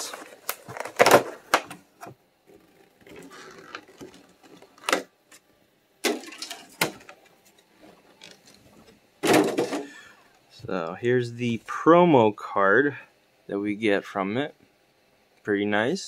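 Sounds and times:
packaging rustling: 0:00.0 - 0:01.8, 0:02.6 - 0:05.1.

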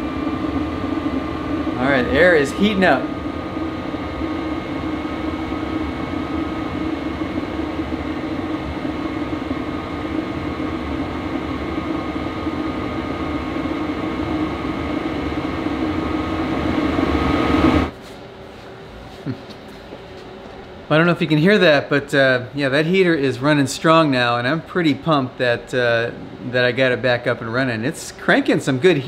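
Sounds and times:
faint whine: 0:00.0 - 0:17.9
air heater blower rushing: 0:00.0 - 0:29.0.

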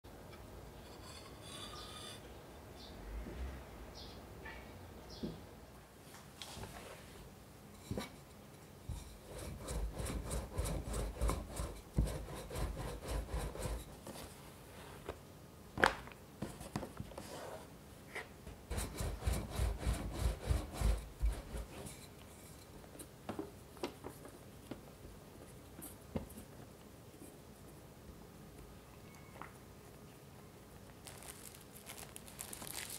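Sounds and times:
rolling pin strokes on pastry: 0:08.9 - 0:15.0, 0:18.7 - 0:22.2.

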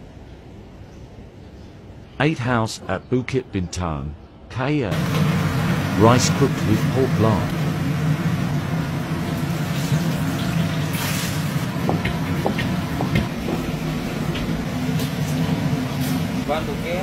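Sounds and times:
gas burner rushing: 0:04.9 - 0:17.0
rice frying in a wok: 0:05.0 - 0:17.0.

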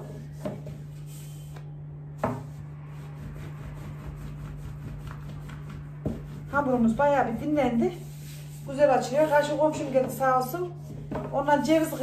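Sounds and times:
low hum: 0:01.3 - 0:08.6
rolling pin rolling over pastry: 0:02.2 - 0:12.0.

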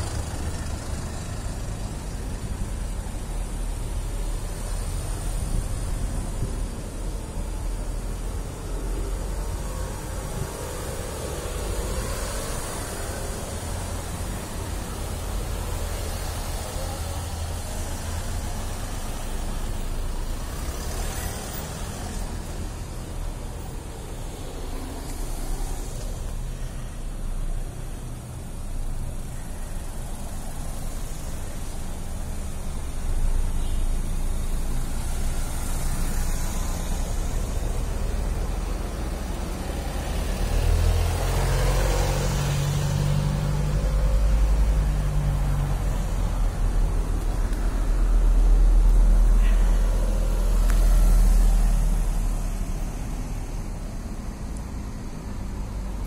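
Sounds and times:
cars driving past: 0:00.0 - 0:56.0.

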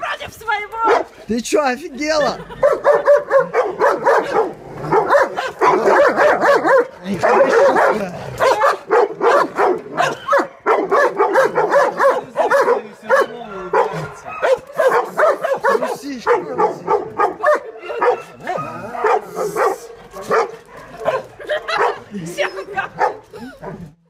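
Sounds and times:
dogs barking rapidly: 0:00.8 - 0:01.3, 0:02.2 - 0:24.0.

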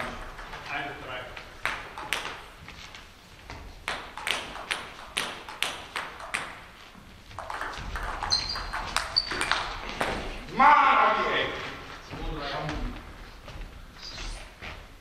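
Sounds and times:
table tennis ball bouncing: 0:00.0 - 0:02.8, 0:03.4 - 0:10.6
shoes squeaking on floor: 0:06.8 - 0:15.0.

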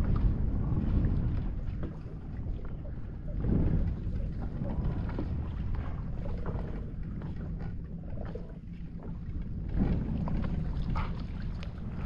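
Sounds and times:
wind buffeting microphone: 0:00.0 - 0:12.0
small waves lapping: 0:09.7 - 0:12.0.

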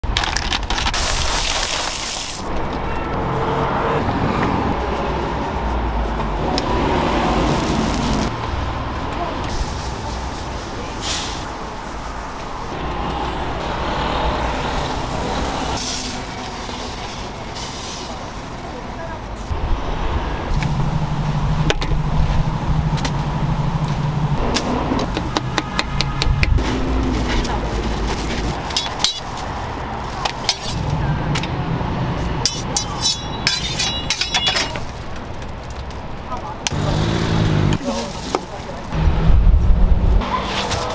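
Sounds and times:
street traffic noise: 0:00.0 - 0:40.9
vehicle passing: 0:02.5 - 0:33.6, 0:34.6 - 0:40.9
cooking utensils clinking: 0:32.4 - 0:35.0.

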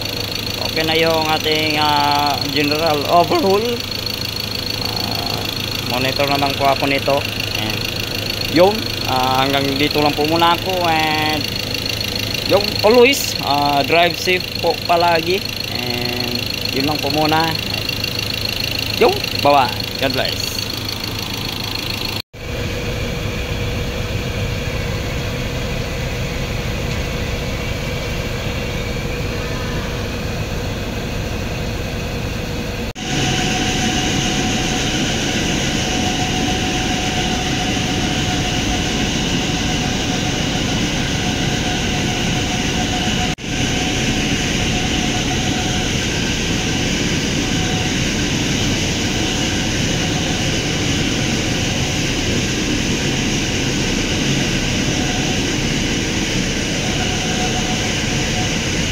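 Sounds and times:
diesel engine running: 0:00.0 - 0:58.9.

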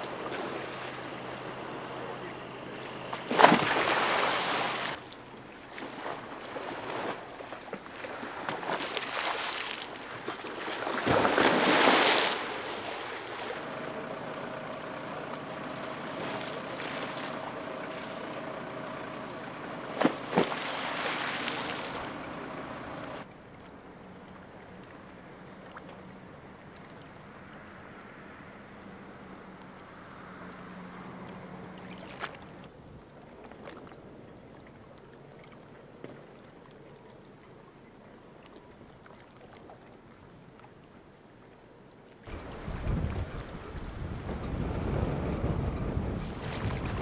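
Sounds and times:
engine hum: 0:00.0 - 0:07.2, 0:10.9 - 0:34.8, 0:42.2 - 0:47.0
wash of water: 0:00.0 - 0:23.3
waves crashing against a seawall: 0:03.2 - 0:05.0, 0:05.9 - 0:13.6, 0:20.0 - 0:22.2
gusty wind: 0:42.3 - 0:47.0.

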